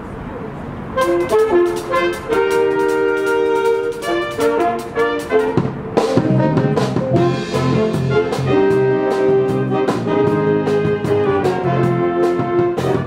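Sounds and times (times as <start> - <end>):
big band jazz: 1.0 - 13.0
drum kit cymbal beat: 1.0 - 13.0.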